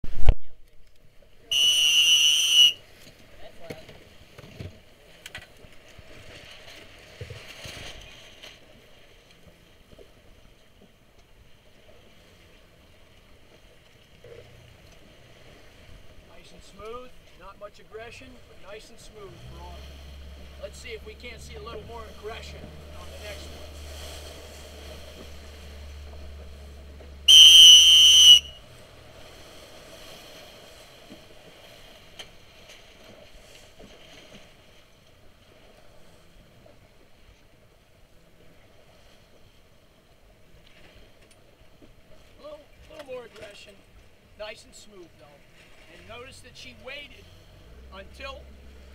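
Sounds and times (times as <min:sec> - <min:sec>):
water splashing against boat hull: 0:01.2 - 0:37.5
shrill whistle blast: 0:01.5 - 0:02.8, 0:27.3 - 0:28.6.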